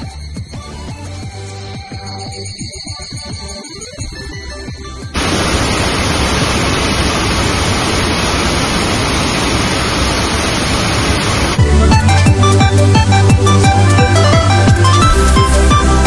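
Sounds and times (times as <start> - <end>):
loud rushing hiss: 5.2 - 11.6
electronic music: 11.6 - 16.0.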